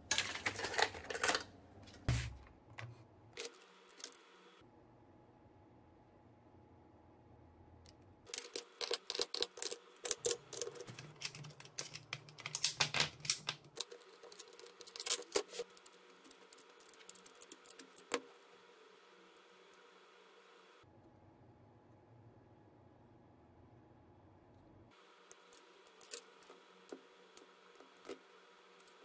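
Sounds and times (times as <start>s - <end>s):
battery cells clicking and rattling: 0.1s - 1.5s, 8.3s - 18.6s, 25.2s - 29.0s.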